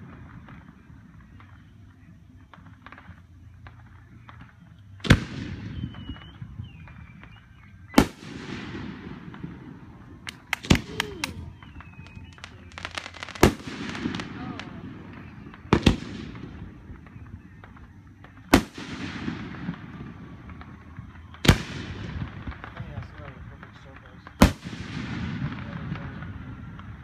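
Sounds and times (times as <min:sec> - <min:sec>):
firework sharp cracks: 0:00.0 - 0:27.0
firework booms with echo: 0:02.4 - 0:27.0.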